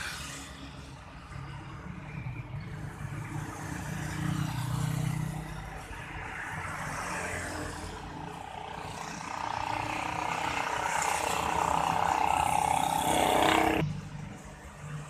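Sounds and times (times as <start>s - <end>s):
road traffic: 0.0s - 15.0s
motorcycle passing by: 3.2s - 14.2s.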